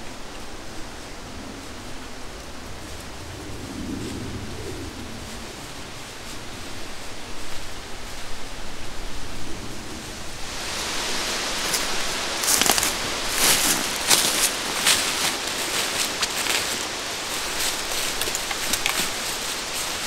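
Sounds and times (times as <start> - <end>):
steady rustling hiss: 0.0 - 20.0
footsteps crunching through dry leaves: 10.1 - 20.0.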